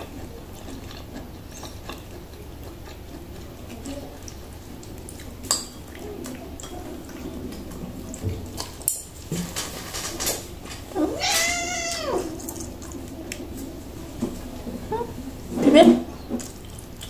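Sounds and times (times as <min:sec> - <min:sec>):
kitten meowing: 0:11.0 - 0:12.3.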